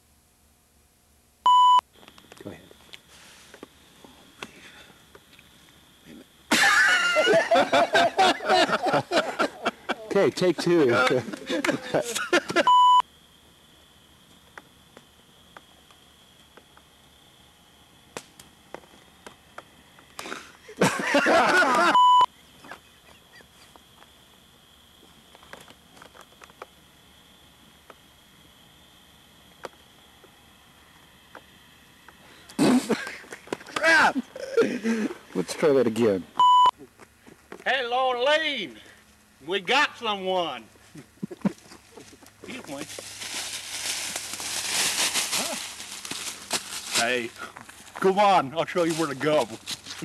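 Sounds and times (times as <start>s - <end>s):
faint high whine: 0.0s - 36.9s
electronic bleep: 1.5s - 1.8s, 12.7s - 13.0s, 22.0s - 22.3s, 36.4s - 36.7s
man laughing loudly: 6.5s - 12.8s, 20.2s - 23.4s, 32.6s - 35.2s, 40.9s - 42.6s.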